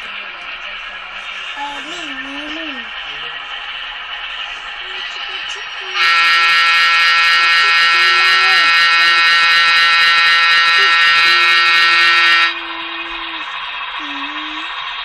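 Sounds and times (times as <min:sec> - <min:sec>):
model locomotive running sound: 0:00.0 - 0:15.0
model train horn blast: 0:05.9 - 0:13.3.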